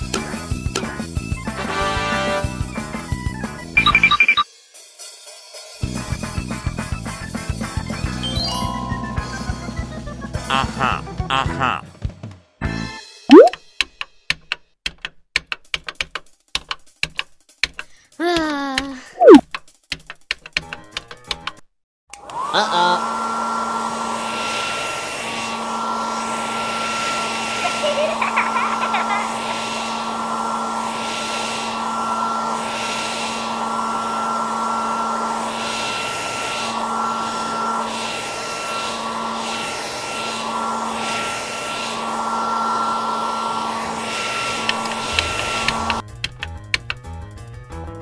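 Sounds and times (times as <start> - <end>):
small electric motor humming: 24.6 - 46.0.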